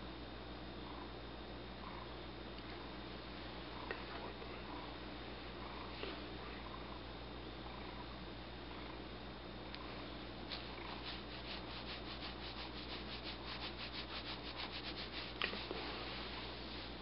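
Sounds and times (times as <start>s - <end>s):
cat tongue rasping on fur: 10.5s - 15.8s.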